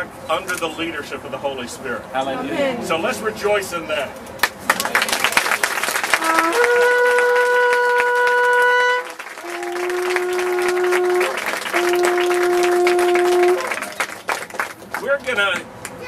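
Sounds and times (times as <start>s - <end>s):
crowd clapping: 4.4s - 16.0s
shofar blasts: 6.0s - 14.2s.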